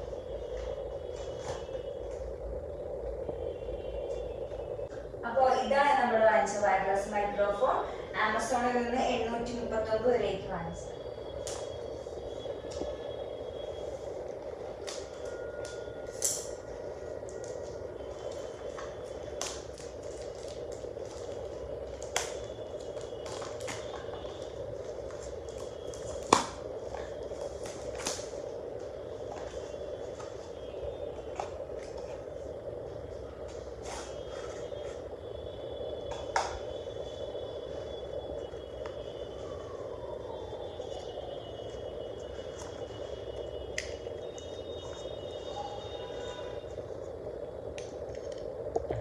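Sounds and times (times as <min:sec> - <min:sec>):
steady background noise: 0:00.0 - 0:49.0
sharp clicks and crinkles: 0:14.8 - 0:17.6.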